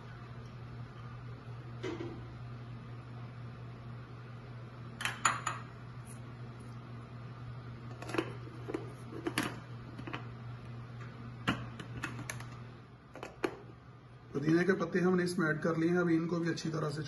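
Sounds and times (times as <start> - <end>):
ceramic bowl set on countertop: 5.0 - 6.2.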